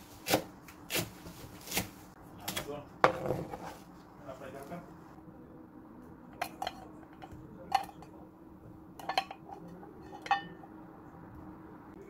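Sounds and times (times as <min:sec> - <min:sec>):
metal bowl knocking and ringing: 0:09.0 - 0:10.7.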